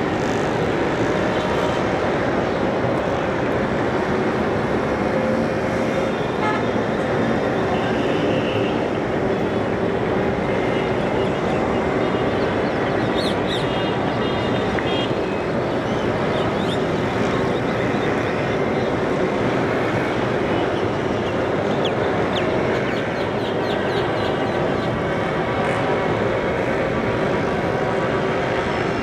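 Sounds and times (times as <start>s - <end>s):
rushing outdoor noise: 0.0s - 29.0s.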